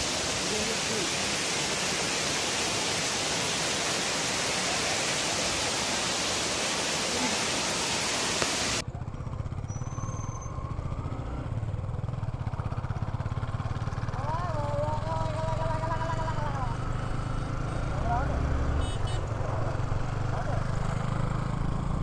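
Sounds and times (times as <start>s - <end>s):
waterfall rushing: 0.0s - 8.8s
motorcycle engine running: 8.8s - 10.0s, 10.6s - 22.0s.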